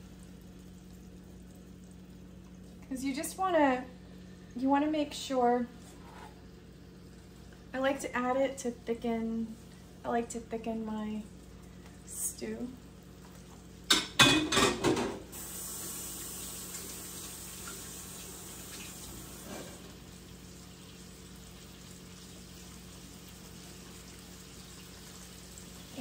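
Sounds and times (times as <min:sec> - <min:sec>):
meat sizzling in oil: 0:15.3 - 0:26.0.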